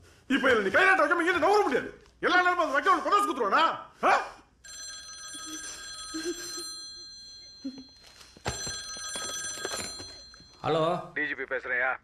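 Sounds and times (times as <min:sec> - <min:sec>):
telephone ringing: 0:04.6 - 0:10.7.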